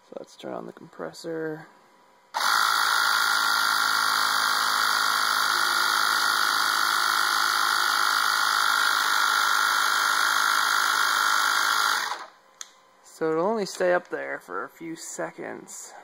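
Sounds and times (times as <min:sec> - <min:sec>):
air compressor running: 0:02.3 - 0:12.4.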